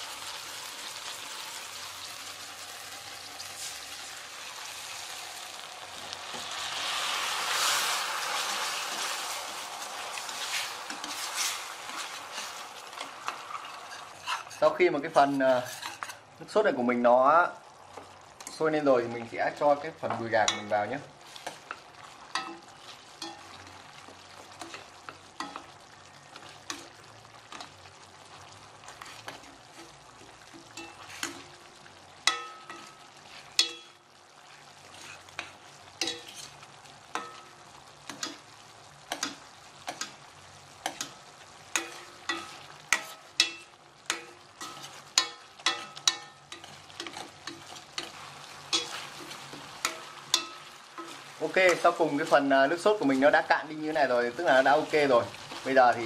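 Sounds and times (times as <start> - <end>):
sauce bubbling and sizzling: 0.0 - 56.0
ladle clinking and scraping pan: 10.2 - 16.2, 32.3 - 34.0, 34.9 - 36.6, 40.8 - 55.7.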